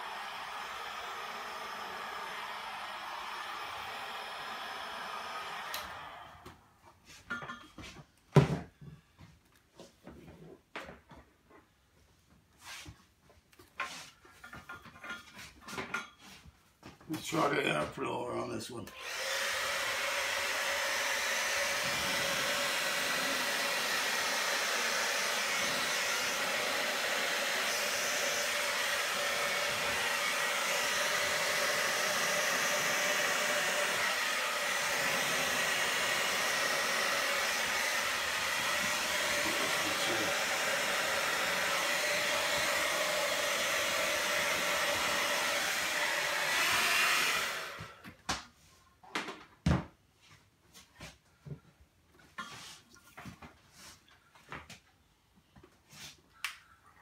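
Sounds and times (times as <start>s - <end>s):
electric air blower running: 0.0s - 6.5s, 19.0s - 48.0s.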